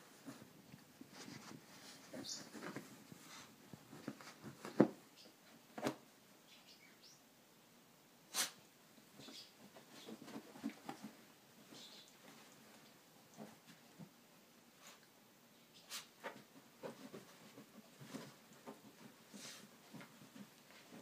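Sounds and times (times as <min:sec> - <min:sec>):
dog thumping and scuffing: 0:00.2 - 0:05.0, 0:16.2 - 0:21.0.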